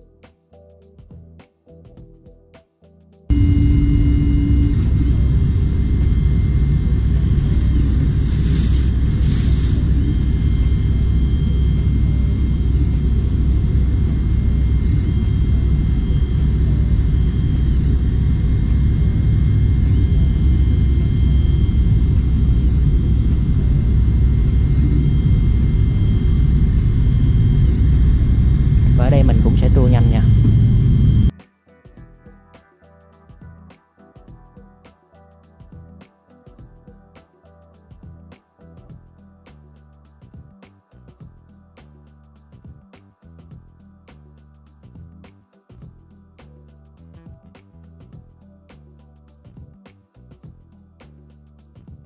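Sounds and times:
faint high whine: 3.3 - 31.3
printer fans and motors rumbling: 3.3 - 31.3.

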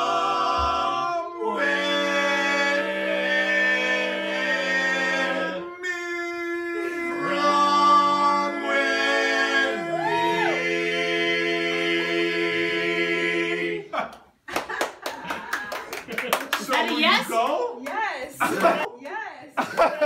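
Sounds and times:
men singing in close harmony: 0.0 - 13.9.

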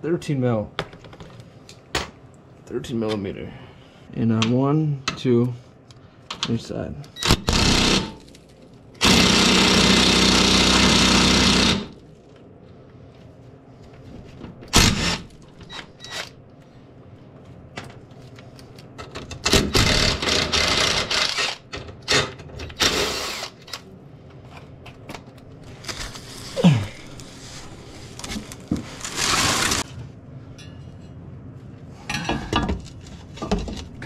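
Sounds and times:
power tool on bolts: 7.2 - 8.2, 9.0 - 12.0, 14.8 - 15.3, 19.5 - 23.6.

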